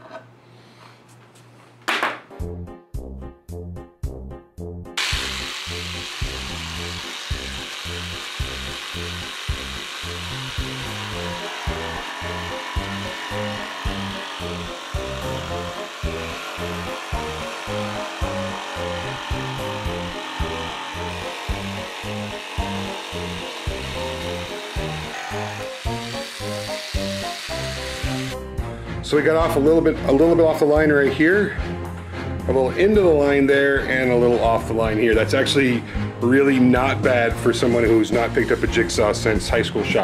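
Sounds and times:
jigsaw cutting plywood: 5.0 - 28.4
background music with steady beat: 14.8 - 40.0.

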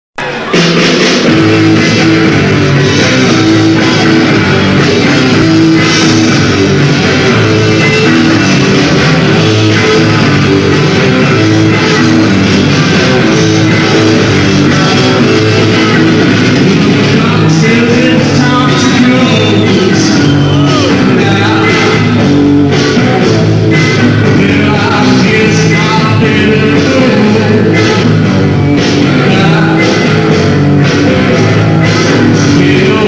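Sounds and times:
live rock band playing: 0.2 - 33.0.

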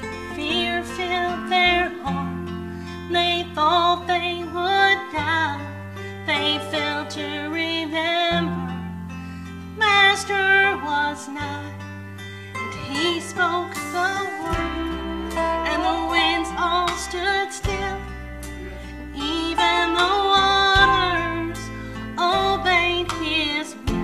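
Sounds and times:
long-held bass notes: 8.3 - 24.0
instrumental accompaniment: 12.0 - 24.0
woman singing with vibrato: 12.6 - 24.0.

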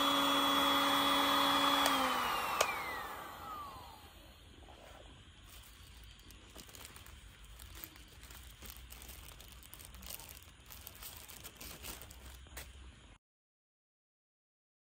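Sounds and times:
plastic bag crinkling: 5.4 - 12.8.

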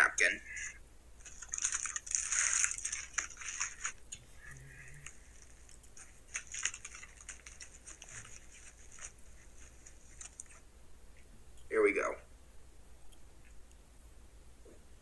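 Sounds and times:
foil wrapper crinkling: 1.2 - 4.1, 4.9 - 10.6.

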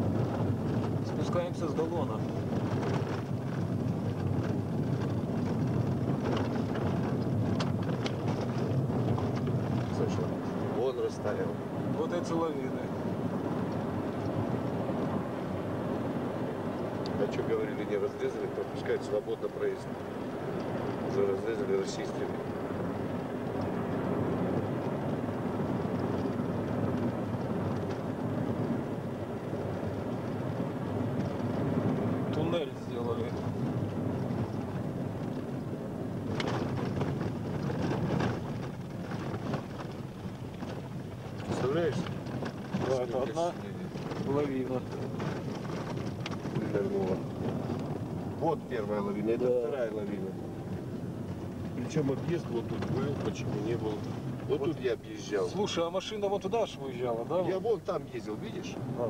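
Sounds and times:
rattles and knocks: 0.0 - 10.5, 36.2 - 48.9
vehicle engine and tyre rumble: 0.0 - 59.0.

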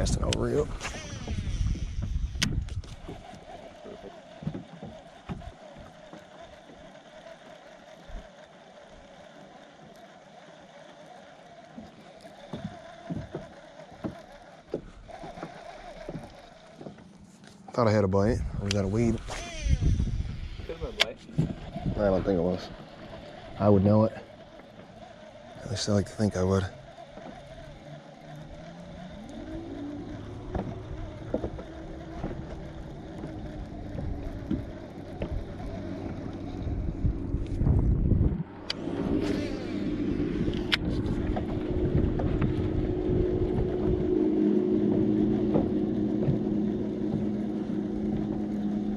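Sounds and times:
low wind-like rumble: 0.0 - 3.4, 18.2 - 22.8, 29.2 - 48.9
waves slapping against boat hull: 0.0 - 7.2, 11.8 - 48.9.

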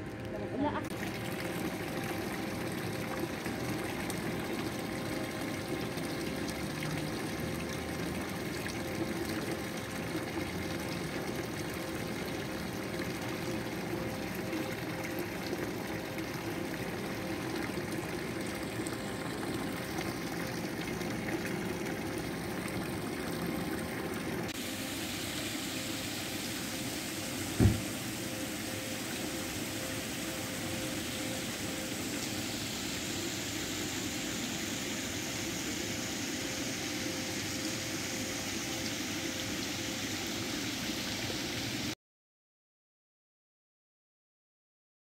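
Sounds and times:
fountain water splashing into basin: 0.0 - 42.0.

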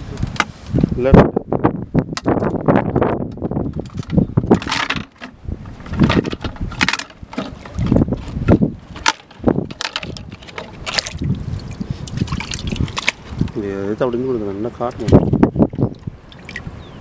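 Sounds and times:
wind rumble on microphone: 0.0 - 17.0
plastic and rope rustling: 2.3 - 13.6
water sloshing and splashing: 2.5 - 16.9.

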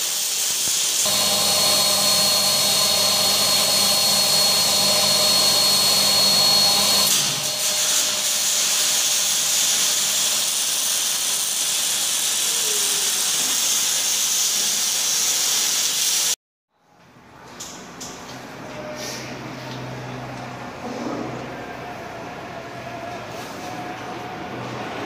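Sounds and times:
spray gun hiss: 0.0 - 16.4
paint sprayer turbine whine: 1.0 - 10.9.

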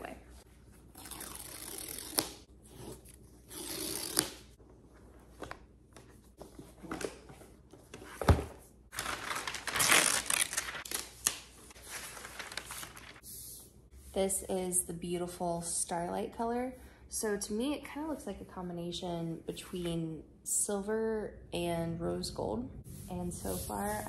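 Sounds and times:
paper packaging rustling: 8.9 - 13.2
paper strips ripping: 9.0 - 13.2.

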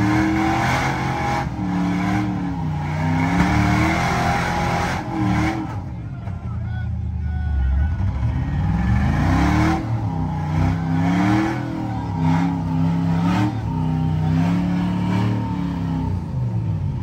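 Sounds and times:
engine revving hard: 0.0 - 5.7, 8.1 - 16.3.

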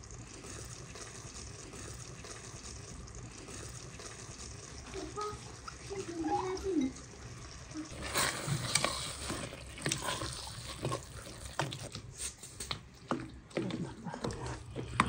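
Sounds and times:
spatula scraping wet vegetables: 7.9 - 15.0.

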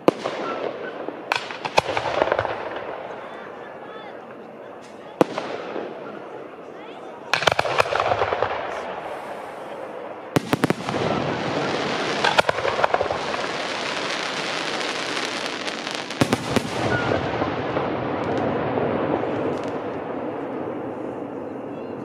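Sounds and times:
firework crackling: 0.0 - 6.6, 7.3 - 21.4
firework shells bursting: 1.2 - 3.1, 7.3 - 9.6, 10.4 - 18.6.

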